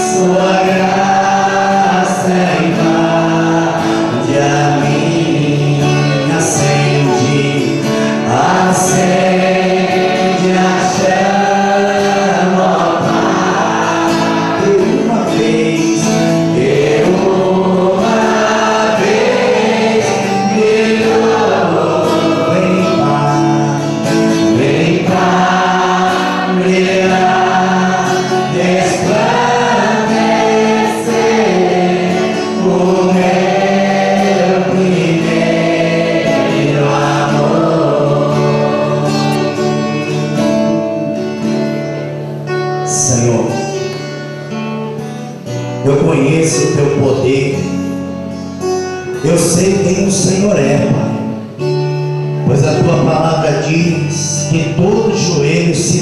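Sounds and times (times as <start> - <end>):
man singing into a microphone: 0.0 - 41.3, 45.8 - 48.0, 49.1 - 51.4, 52.4 - 56.0
voices singing together: 0.0 - 41.6
instrumental backing: 0.0 - 56.0.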